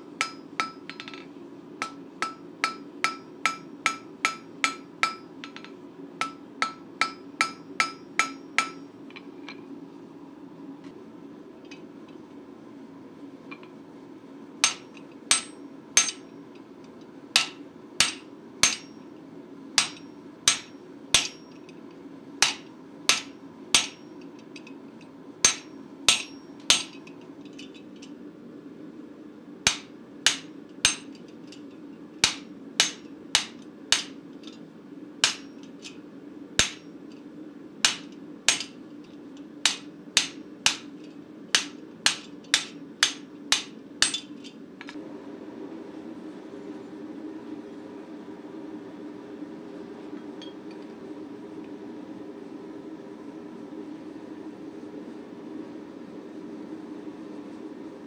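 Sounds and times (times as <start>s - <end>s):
steady low hum: 0.0s - 58.0s
hammer striking metal die: 14.6s - 16.2s, 17.4s - 19.0s, 19.8s - 21.4s, 25.5s - 27.0s, 29.7s - 31.2s, 32.2s - 34.2s, 35.2s - 35.6s, 36.6s - 36.9s, 37.9s - 38.8s, 39.7s - 40.9s, 41.6s - 45.0s.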